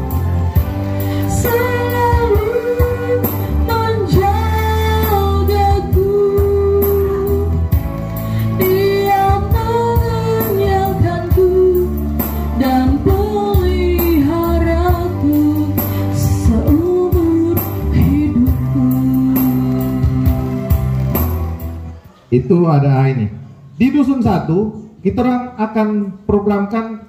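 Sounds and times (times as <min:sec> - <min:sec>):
band accompaniment with bass: 0:00.0 - 0:22.0
person singing long notes: 0:00.9 - 0:21.0.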